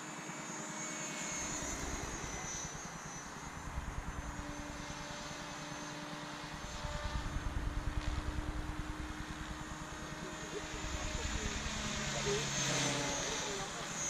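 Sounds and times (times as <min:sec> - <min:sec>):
rc helicopter rotor hum: 0:00.0 - 0:14.0
low gusty rumble: 0:06.6 - 0:10.0.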